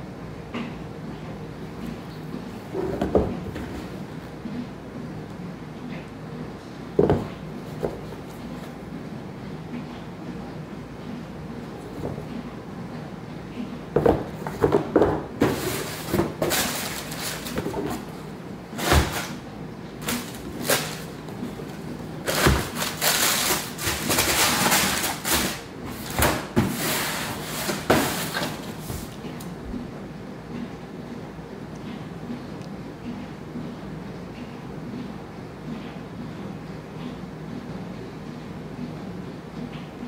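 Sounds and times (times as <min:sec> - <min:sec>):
shoes and box knocking: 0:07.0 - 0:08.1, 0:14.0 - 0:18.1, 0:22.3 - 0:26.8
tissue paper rustling: 0:15.4 - 0:18.2, 0:20.0 - 0:26.2.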